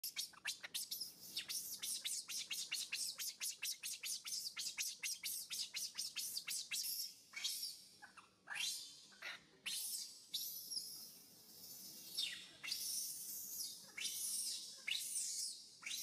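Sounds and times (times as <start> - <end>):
baby monkey squealing: 11.7 - 16.0.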